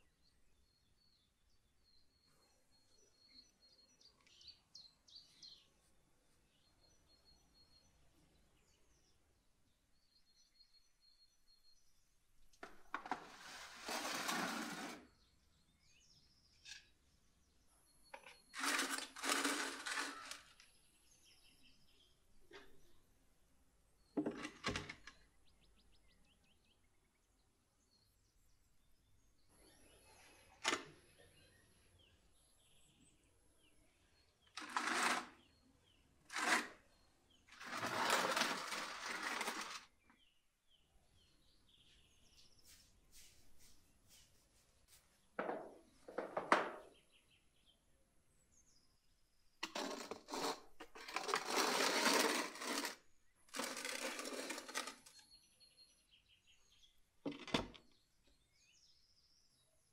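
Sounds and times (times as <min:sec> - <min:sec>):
wooden door scraping: 0:12.9 - 0:15.1, 0:18.6 - 0:20.5, 0:34.6 - 0:35.3, 0:36.3 - 0:36.7, 0:37.5 - 0:39.8, 0:49.6 - 0:55.2.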